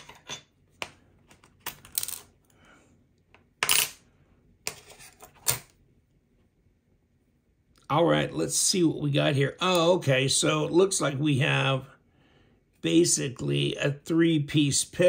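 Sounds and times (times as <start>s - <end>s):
small metal parts clinking: 1.6s - 2.4s.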